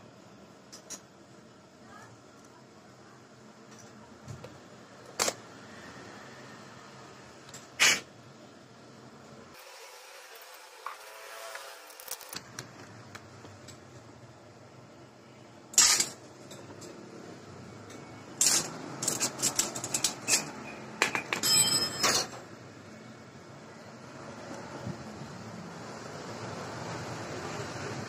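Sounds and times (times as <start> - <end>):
small metal parts clicking and rattling: 11.8 - 12.7, 15.7 - 17.0, 17.8 - 22.4.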